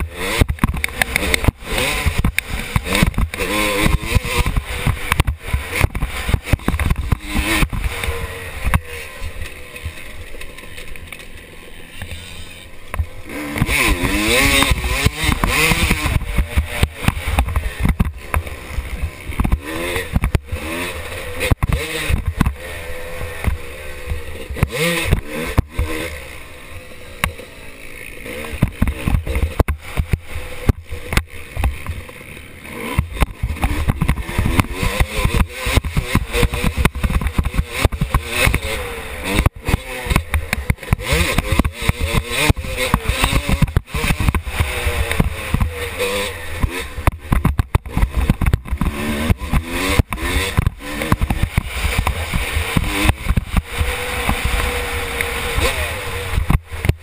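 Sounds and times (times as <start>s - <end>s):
helmet camera knocking and buffeting: 0.0s - 8.9s, 12.9s - 20.6s, 21.5s - 22.6s, 28.5s - 32.1s, 33.0s - 38.7s, 39.3s - 45.8s, 46.6s - 57.0s
motocross bike engine revving: 0.0s - 57.0s.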